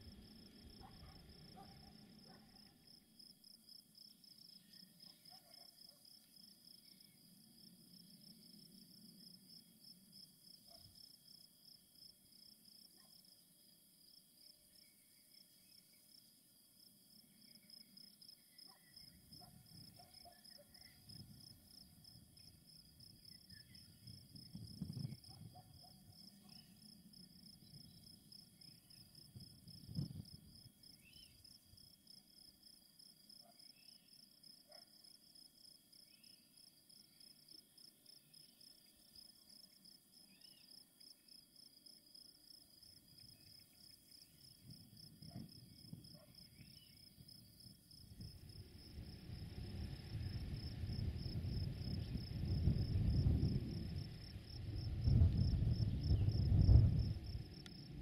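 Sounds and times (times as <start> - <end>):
crickets chirping: 0.0 - 58.0
faint bird chirps: 26.3 - 26.9, 30.9 - 31.4, 40.2 - 40.7.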